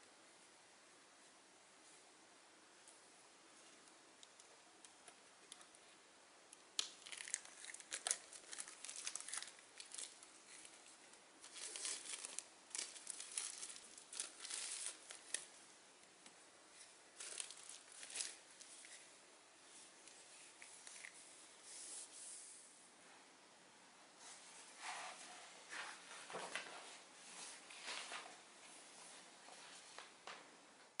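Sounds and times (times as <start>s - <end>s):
plastic wrapping crinkling and tearing: 6.7s - 15.6s, 17.2s - 19.0s.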